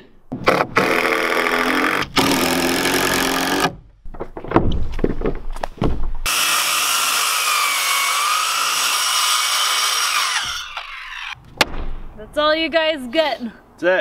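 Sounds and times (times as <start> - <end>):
knocks: 4.1 - 6.2, 11.4 - 12.1
circular saw cutting wood: 6.3 - 11.4.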